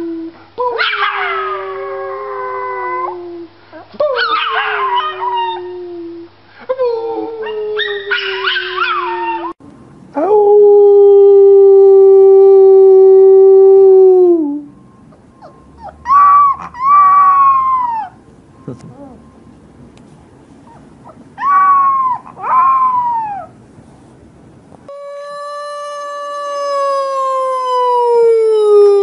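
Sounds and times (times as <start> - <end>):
second lower dog howl: 0.0 - 3.2, 7.2 - 9.6, 15.4 - 18.2, 21.4 - 23.5, 24.9 - 29.0
puppy short high howls: 0.7 - 3.2, 4.1 - 5.7, 7.2 - 9.6, 15.4 - 18.2, 20.7 - 23.6
dog howling: 0.8 - 3.2, 4.1 - 6.0, 7.1 - 9.6, 10.2 - 18.2, 20.7 - 23.6, 24.9 - 29.0.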